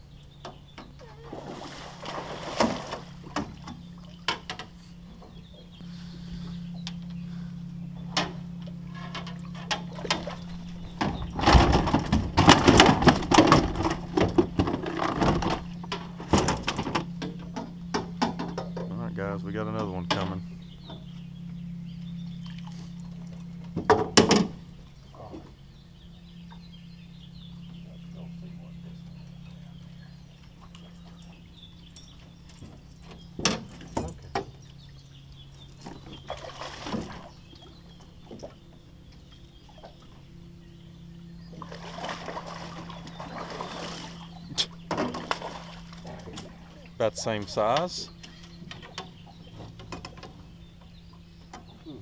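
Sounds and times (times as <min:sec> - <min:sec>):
low hum: 0:00.0 - 0:52.0
water splashing: 0:01.0 - 0:04.6, 0:35.8 - 0:38.6, 0:41.5 - 0:48.0.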